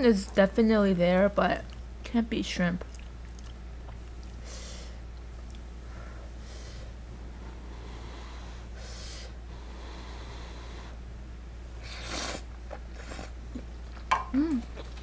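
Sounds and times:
air conditioner hum: 0.0s - 15.0s
slurping pasta: 11.8s - 13.4s.

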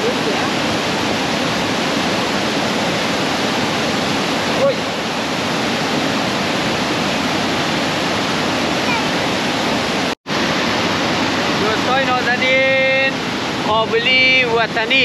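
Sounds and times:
waterfall rushing over rocks: 0.0s - 15.0s.

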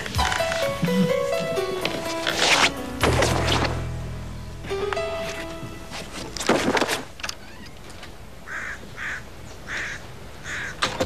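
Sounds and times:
crow cawing: 8.5s - 10.8s.

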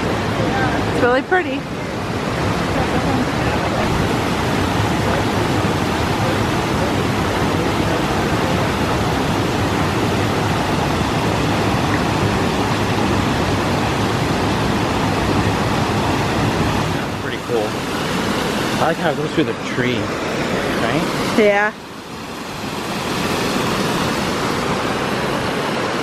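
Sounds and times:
waterfall pouring into pool: 2.5s - 20.0s, 20.8s - 21.5s.

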